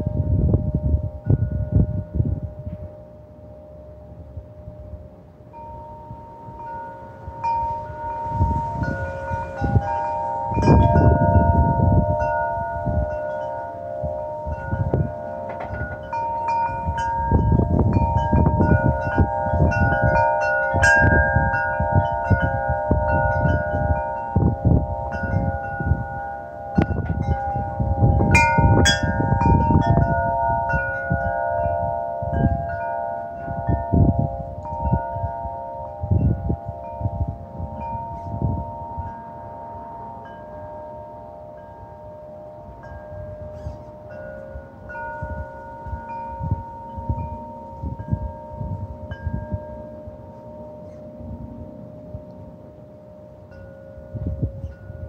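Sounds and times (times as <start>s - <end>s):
wind chimes ringing: 0.0s - 55.0s
wind gusts rumbling: 0.0s - 55.0s.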